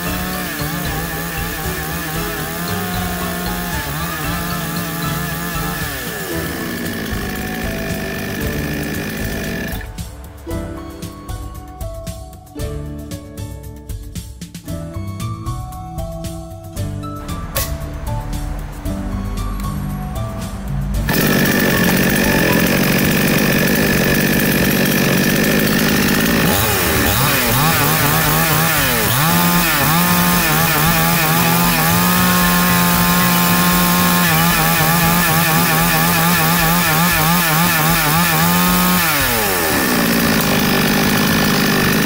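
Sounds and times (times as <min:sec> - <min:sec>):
chainsaw revving: 0:00.0 - 0:09.9, 0:21.0 - 0:42.0
chainsaw idling: 0:00.0 - 0:10.0, 0:21.0 - 0:42.0.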